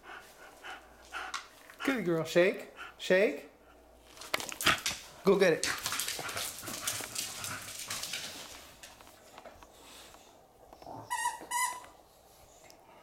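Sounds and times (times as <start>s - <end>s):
dog claws clicking on wooden floor: 4.1s - 9.7s.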